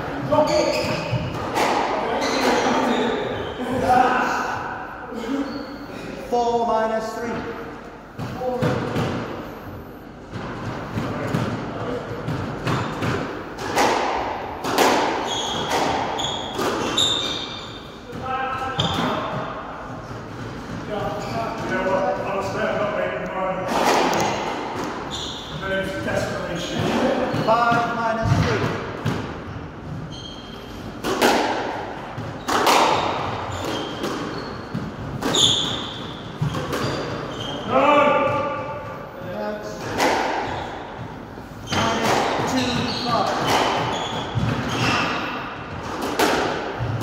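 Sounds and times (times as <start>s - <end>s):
squash ball hits echoing: 0.1s - 3.2s, 8.2s - 9.5s, 10.3s - 22.7s, 23.6s - 30.0s, 30.8s - 39.0s, 39.7s - 47.0s
shoes squeaking on wooden floor: 0.3s - 3.6s, 15.2s - 19.4s, 24.1s - 25.7s, 29.9s - 30.8s, 32.3s - 37.7s, 40.4s - 45.9s
squash ball smacking walls: 10.3s - 17.4s, 31.0s - 37.3s, 41.7s - 47.0s.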